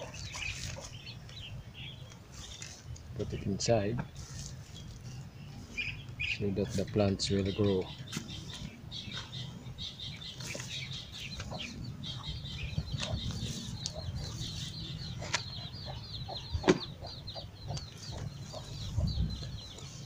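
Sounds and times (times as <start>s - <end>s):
soil rustling and pattering: 0.0s - 9.3s
birds chirping: 0.0s - 20.0s.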